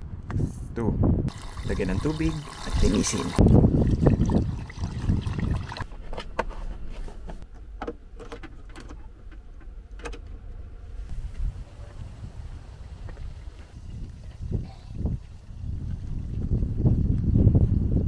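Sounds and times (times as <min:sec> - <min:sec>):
rice swished in water: 0:01.3 - 0:03.4.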